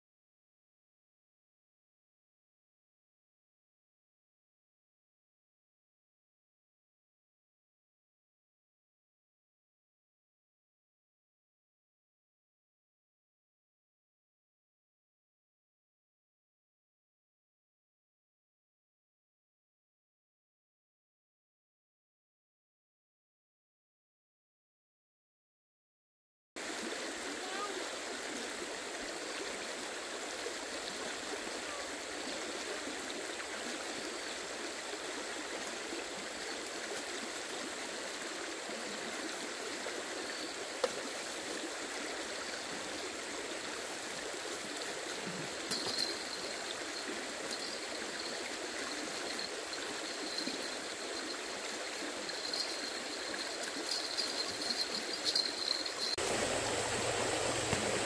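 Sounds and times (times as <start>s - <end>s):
flowing water rushing: 26.6s - 58.0s.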